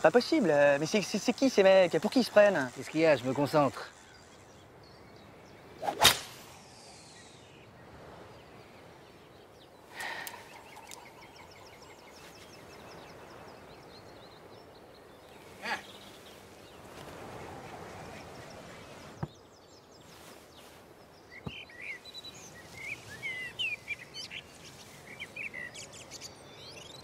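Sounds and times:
faint birdsong: 0.0 - 27.0
ball whooshing away: 5.8 - 7.5.

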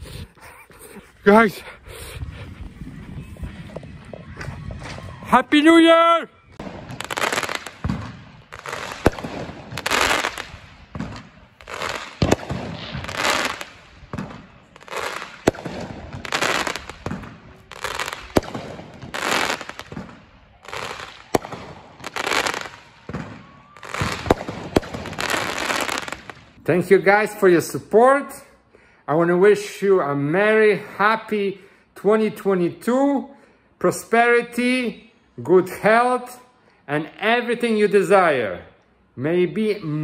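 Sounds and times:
fireworks bangs and crackling: 2.9 - 26.6.

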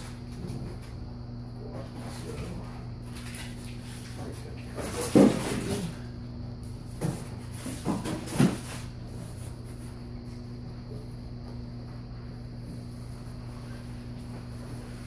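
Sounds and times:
cardboard and packing rustling: 1.9 - 6.0, 6.9 - 9.9.

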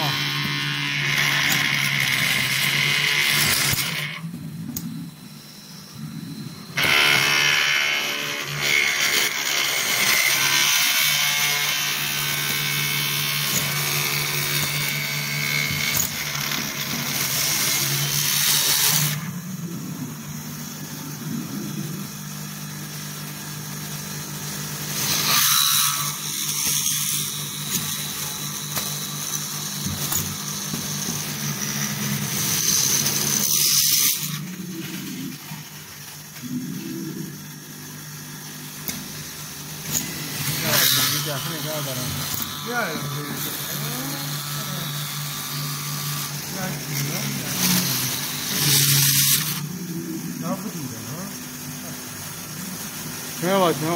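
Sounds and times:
screw machine humming: 0.0 - 53.9.

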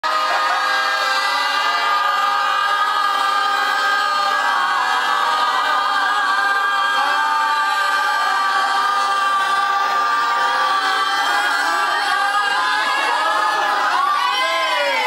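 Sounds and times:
group of people shouting together: 0.0 - 15.0.

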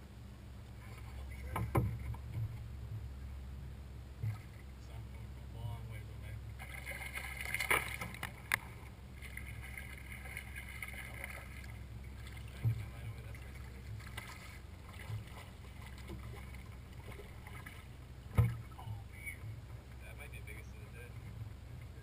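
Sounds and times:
steady low hum: 0.0 - 22.0
thump: 1.5 - 3.0, 4.2 - 4.4, 18.3 - 18.7
sharp clicks and knocks: 1.5 - 3.1.

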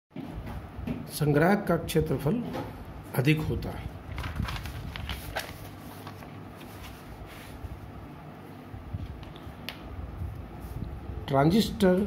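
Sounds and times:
steady low hum: 0.2 - 12.0
notebook pages turning: 4.1 - 7.6.

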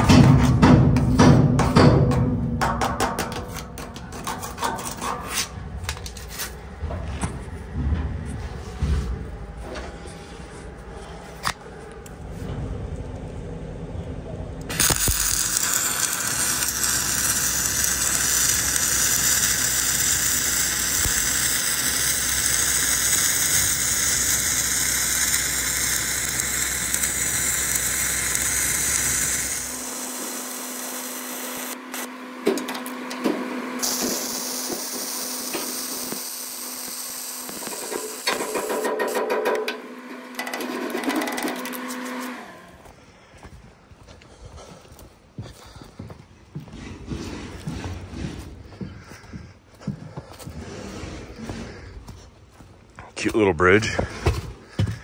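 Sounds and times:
welding arc crackling hiss: 14.7 - 32.1, 33.8 - 39.1.

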